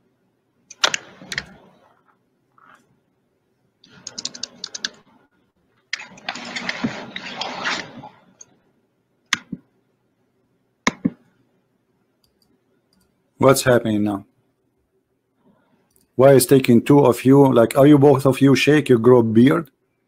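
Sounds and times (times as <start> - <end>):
typing on a computer keyboard: 3.9 - 5.0.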